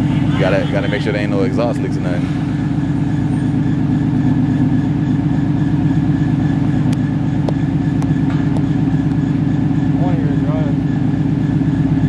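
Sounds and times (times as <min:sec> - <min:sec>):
loud car engine idling: 0:00.0 - 0:12.0.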